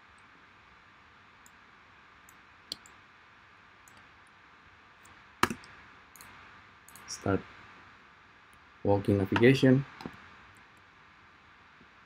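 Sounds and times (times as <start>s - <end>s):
faint room hiss: 0.0s - 12.0s
computer mouse clicks: 2.2s - 3.0s, 3.8s - 4.1s, 5.0s - 7.1s.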